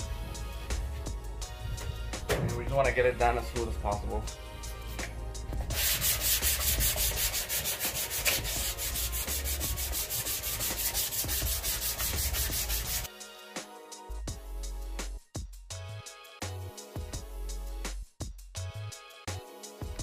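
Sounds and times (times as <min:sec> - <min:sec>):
music: 0:00.0 - 0:20.0
sanding block rasping: 0:05.7 - 0:13.1.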